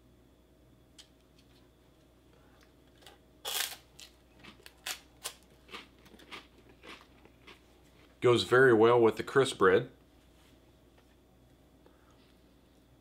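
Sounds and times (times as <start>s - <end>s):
dry crunches of chewing: 3.0s - 8.2s
crispbread crunching: 3.5s - 8.2s.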